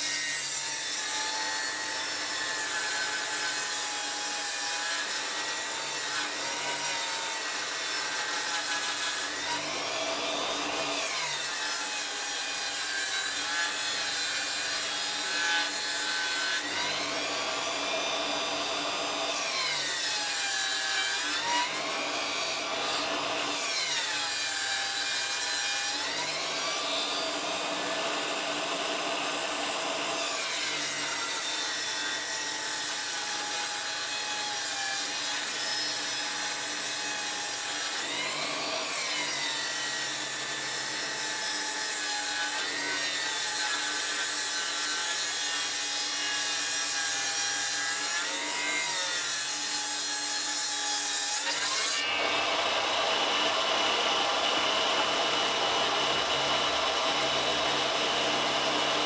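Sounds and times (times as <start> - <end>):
circular saw ripping wood: 0.0 - 59.0.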